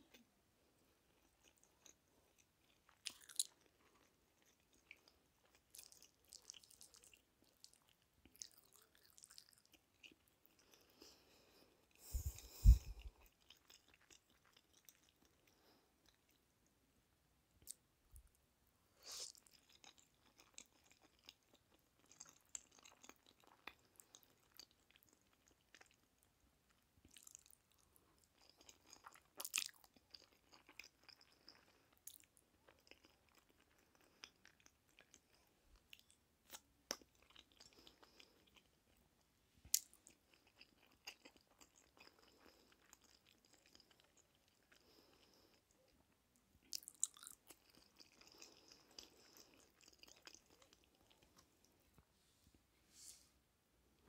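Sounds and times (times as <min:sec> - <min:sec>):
chewing and wet mouth sounds: 0:00.0 - 0:16.8, 0:17.6 - 0:18.4, 0:19.0 - 0:52.0.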